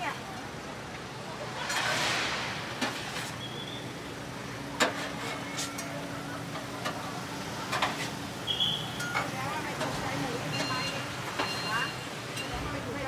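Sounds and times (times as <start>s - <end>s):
steady traffic hum: 0.0s - 13.0s
metal spatula scraping a griddle: 1.6s - 3.4s, 4.8s - 5.8s.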